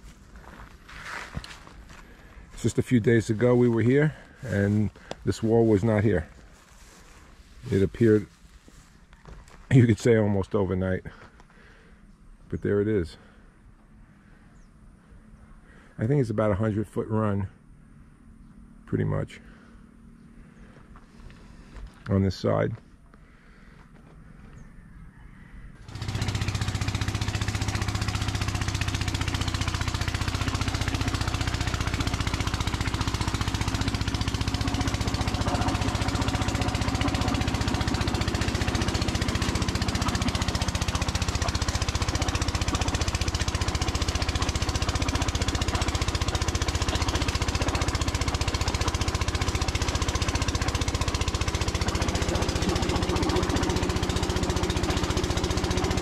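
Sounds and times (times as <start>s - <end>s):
small engine running with rattle: 0.0s - 10.4s, 25.8s - 56.0s.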